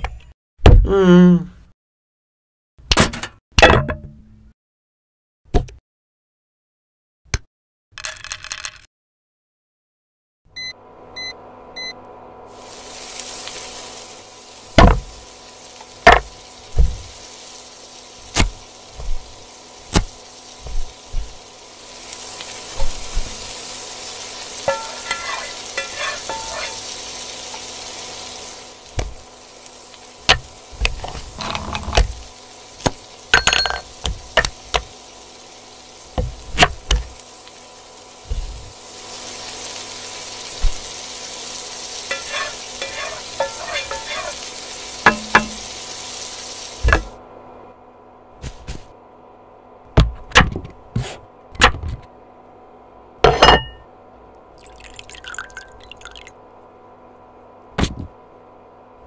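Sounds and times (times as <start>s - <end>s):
frying sizzle in a pan: 11.2s - 47.3s, 54.5s - 56.4s.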